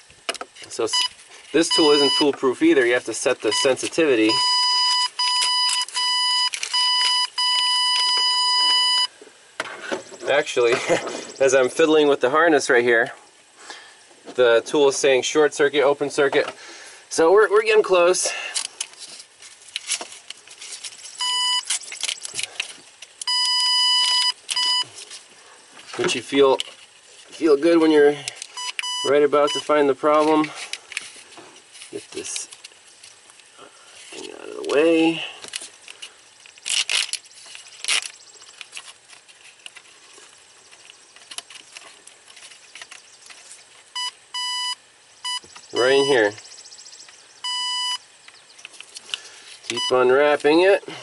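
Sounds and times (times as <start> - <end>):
wiring harness rustling and clicking: 0.3 - 9.1, 18.5 - 44.1, 48.3 - 50.6
electronic beeping tone: 0.9 - 1.1, 1.7 - 2.4, 3.5 - 9.1, 21.2 - 21.7, 23.3 - 24.9, 28.6 - 29.7, 44.0 - 48.0, 49.8 - 50.0.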